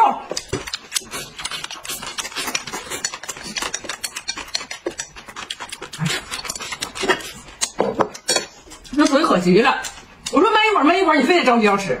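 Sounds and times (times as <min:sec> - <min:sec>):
chewing and slurping: 0:00.3 - 0:10.4
small mouth clicks: 0:00.4 - 0:07.8.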